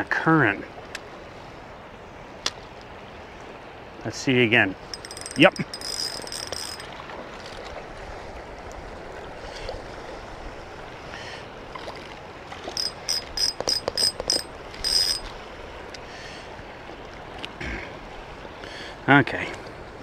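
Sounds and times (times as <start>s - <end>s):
wind: 0.0s - 20.0s
river current rushing: 3.1s - 17.4s
fishing reel whirring: 4.9s - 6.9s, 12.8s - 15.3s.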